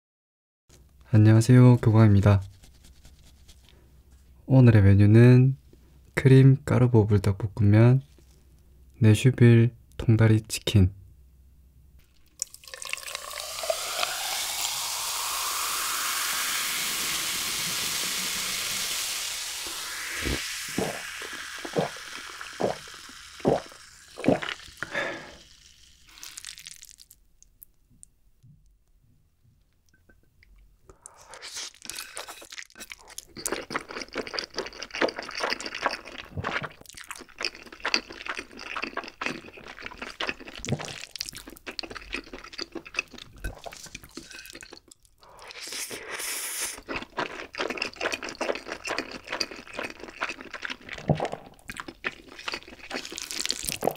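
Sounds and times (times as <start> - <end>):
ice clinking: 12.3 - 27.2
cola pouring fizzing hiss: 12.4 - 27.2, 45.4 - 46.9, 53.0 - 53.9.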